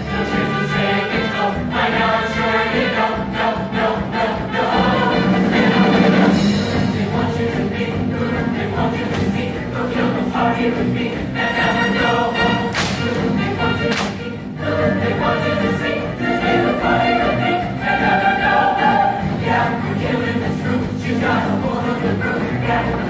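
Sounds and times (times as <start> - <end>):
choir singing with accompaniment: 0.0 - 23.0.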